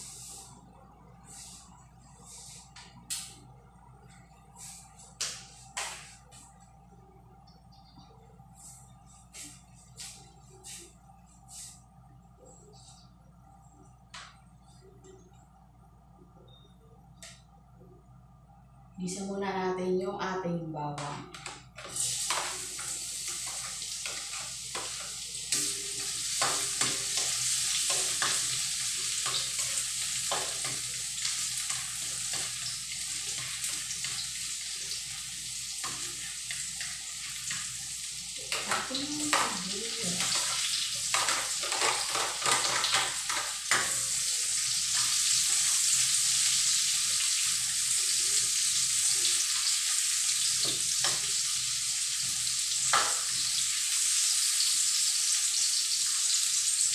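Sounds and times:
garlic sizzling in hot oil: 0:21.9 - 0:56.9.

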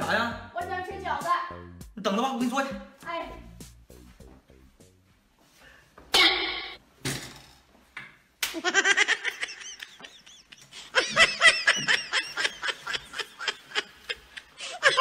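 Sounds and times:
hearty laughter: 0:08.6 - 0:15.0.

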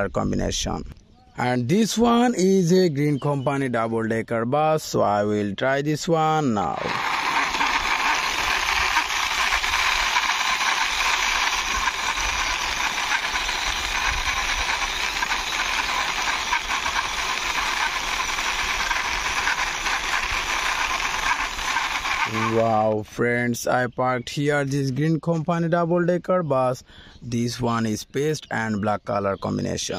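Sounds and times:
toy wheels rolling on concrete: 0:06.6 - 0:22.9.

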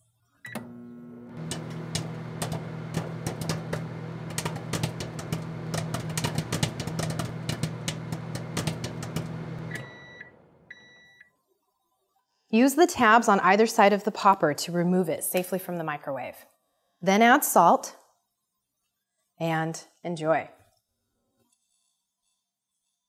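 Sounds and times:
microwave beeps: 0:00.4 - 0:04.0, 0:07.5 - 0:11.3
popcorn popping: 0:00.5 - 0:09.9
microwave oven humming: 0:00.5 - 0:11.2.

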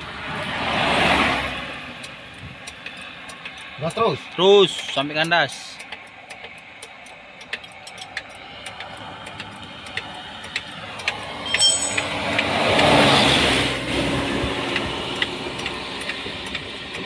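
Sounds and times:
bus passing: 0:00.0 - 0:04.8, 0:08.4 - 0:17.0
sharp metallic clicks: 0:02.0 - 0:12.9.

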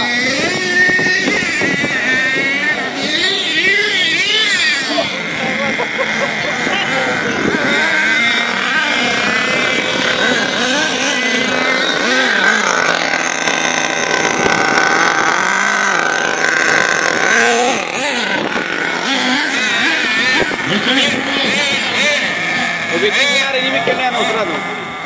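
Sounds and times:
model truck engines revving: 0:00.0 - 0:25.0.

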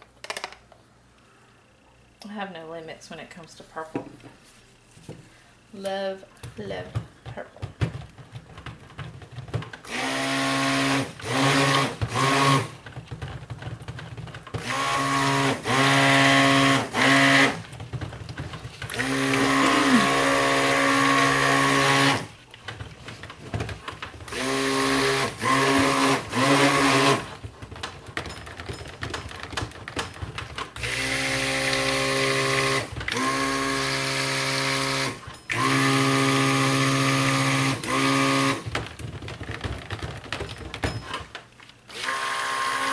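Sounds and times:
stick blender motor humming: 0:07.8 - 0:40.4, 0:41.9 - 0:42.9.

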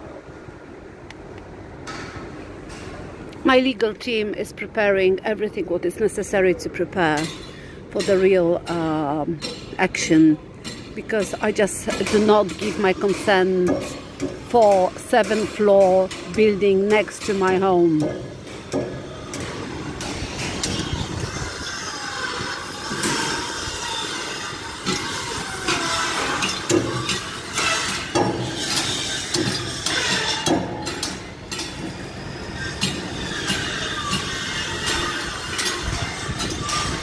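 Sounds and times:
metal clanks and knocks: 0:10.6 - 0:37.0
falling squeals: 0:19.0 - 0:30.5, 0:32.0 - 0:37.0.

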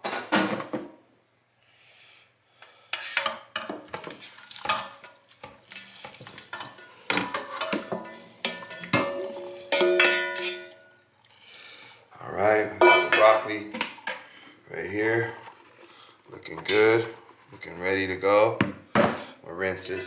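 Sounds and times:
spatula scraping metal pan: 0:02.9 - 0:10.8.

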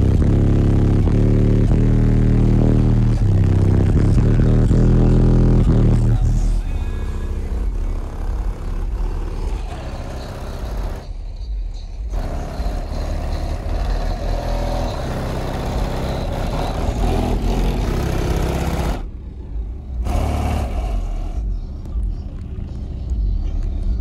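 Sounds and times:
bass-heavy music from subwoofers: 0:00.0 - 0:24.0.

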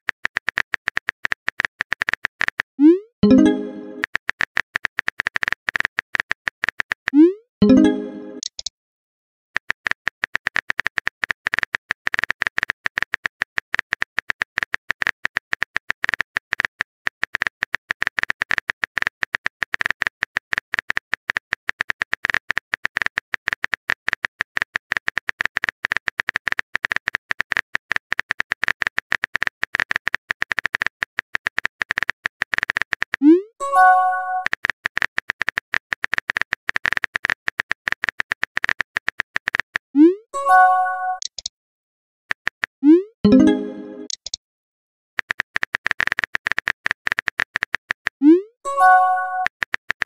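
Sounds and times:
phone keyboard clicks: 0:08.4 - 0:08.7, 0:41.2 - 0:41.5, 0:43.4 - 0:44.4, 0:45.2 - 0:48.2.

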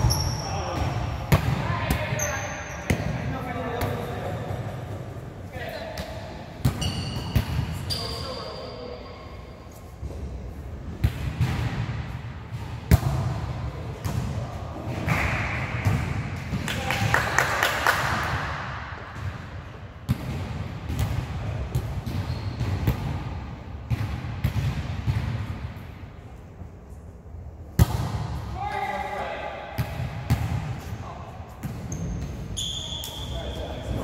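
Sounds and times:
court noise: 0:00.0 - 0:26.3, 0:27.6 - 0:34.0
gym hall noise: 0:00.0 - 0:34.0
volleyball hits and thuds: 0:11.0 - 0:16.7, 0:19.1 - 0:25.7, 0:27.7 - 0:28.4.

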